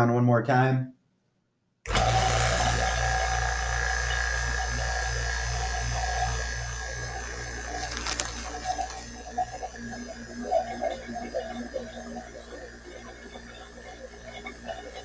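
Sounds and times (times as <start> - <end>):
vacuum pump humming with pulsing beat: 1.9 - 15.0.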